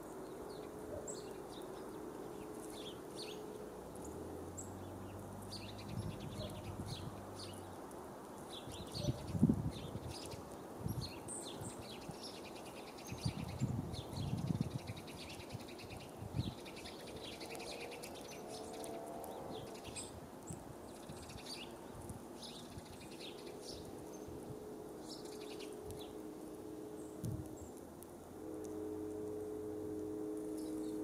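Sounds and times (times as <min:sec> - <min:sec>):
small birds chirping: 0:00.0 - 0:26.4
faint steady hum: 0:21.6 - 0:31.0.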